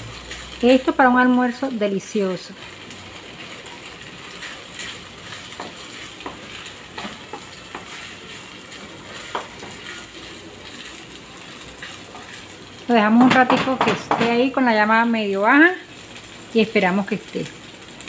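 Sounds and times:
chicken sizzling in a frying pan: 0.0s - 18.0s
wooden spoon scraping a pan: 3.6s - 14.5s.

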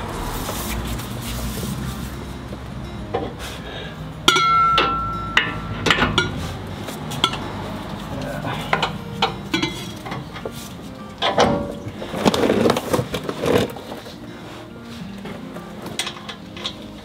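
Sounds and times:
metal bar clinking against chassis: 4.2s - 10.6s, 11.2s - 11.9s, 15.8s - 17.0s.

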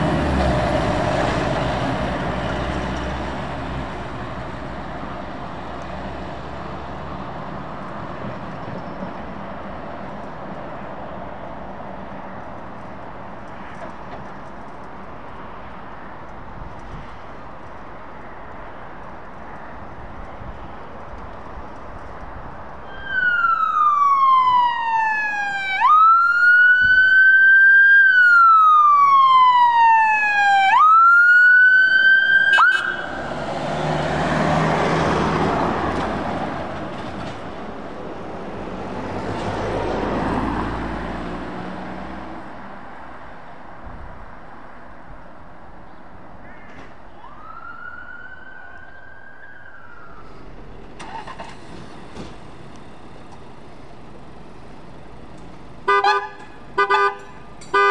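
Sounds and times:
passing traffic: 0.0s - 57.9s
emergency siren wailing: 22.8s - 35.8s, 47.1s - 51.4s.

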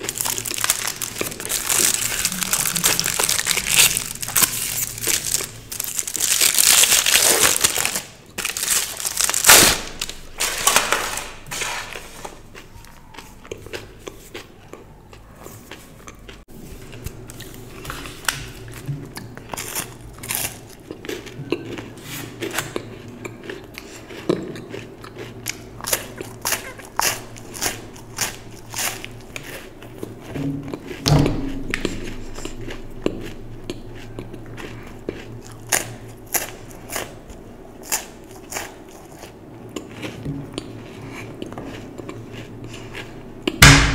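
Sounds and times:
chewing: 0.0s - 7.4s, 12.0s - 31.0s, 31.6s - 43.6s
teeth biting chocolate bar: 0.0s - 8.0s
foil wrapper crinkling: 0.0s - 12.4s.

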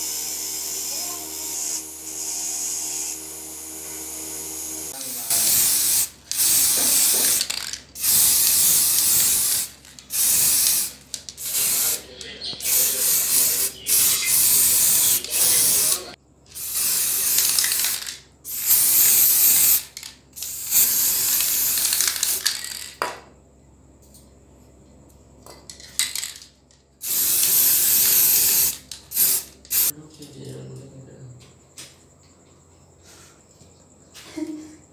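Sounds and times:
spray paint hissing: 0.0s - 22.9s, 27.0s - 30.0s.

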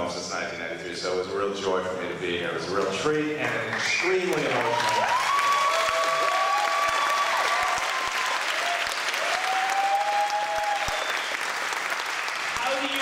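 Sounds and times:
audience applauding: 3.4s - 13.0s
drawn-out cheers: 4.6s - 11.5s.

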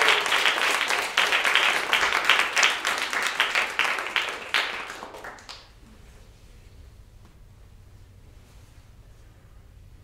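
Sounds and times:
audience applauding: 0.0s - 5.8s.

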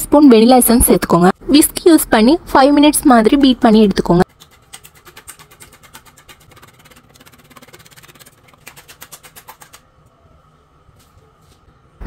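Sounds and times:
whisk beating eggs in a bowl: 4.2s - 9.9s.

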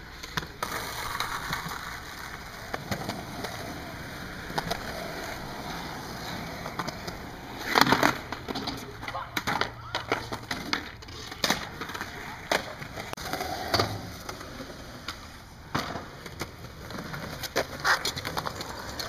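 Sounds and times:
skateboard wheels rolling on concrete: 0.0s - 19.0s
skateboard clacking on ground: 0.1s - 19.0s.

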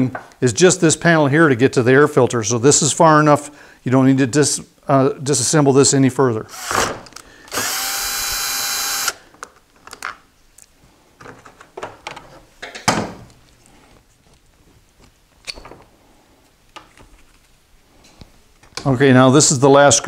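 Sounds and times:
cordless drill running: 6.5s - 9.3s.

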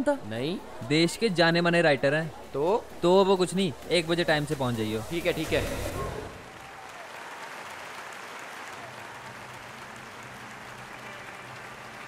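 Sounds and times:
audience applause: 6.2s - 12.0s.

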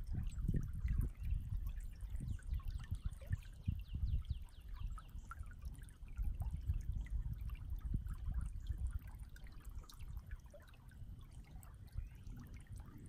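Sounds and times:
creek water babbling: 0.0s - 13.0s.

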